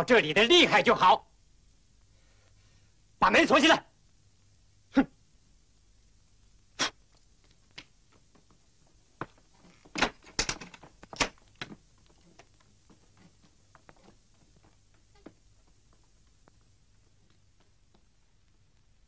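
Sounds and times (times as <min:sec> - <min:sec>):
wooden door shut and locked: 0:09.8 - 0:11.3.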